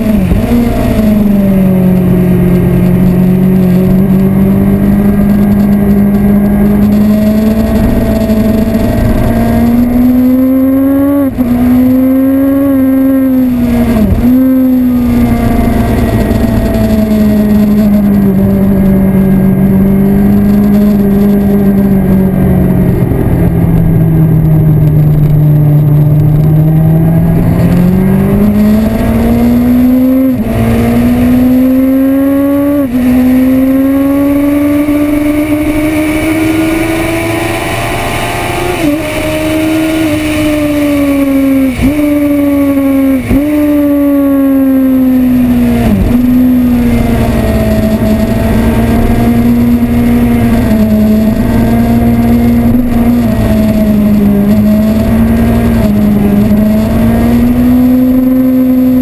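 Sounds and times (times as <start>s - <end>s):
sportbike engine at speed: 0.0s - 59.0s.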